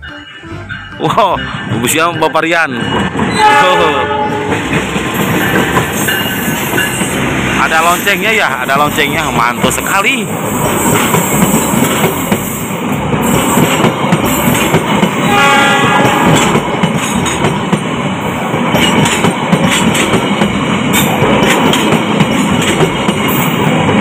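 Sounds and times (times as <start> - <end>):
brief pitched tone: 0.0 - 4.1
train coaches rumbling past: 0.0 - 24.0
wheels clacking over rail joints: 4.4 - 24.0.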